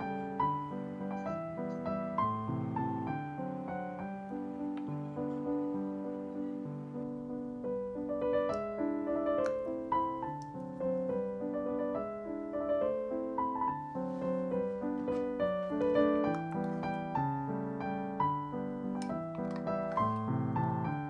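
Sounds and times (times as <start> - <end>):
gentle piano music: 0.0 - 21.0.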